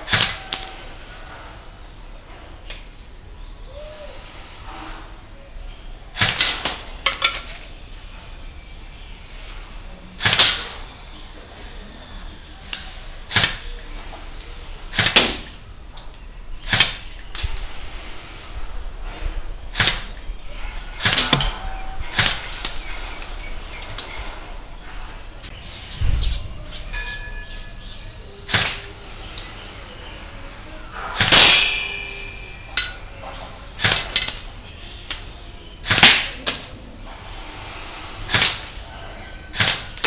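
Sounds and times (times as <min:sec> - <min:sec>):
airsoft rifle shots: 0:00.0 - 0:00.8, 0:06.2 - 0:07.3, 0:10.2 - 0:10.9, 0:13.3 - 0:13.7, 0:14.9 - 0:15.6, 0:16.6 - 0:17.1, 0:19.7 - 0:20.2, 0:21.0 - 0:22.9, 0:28.5 - 0:28.9, 0:31.1 - 0:32.4, 0:33.8 - 0:34.5, 0:35.8 - 0:36.7, 0:38.3 - 0:38.8, 0:39.5 - 0:40.0.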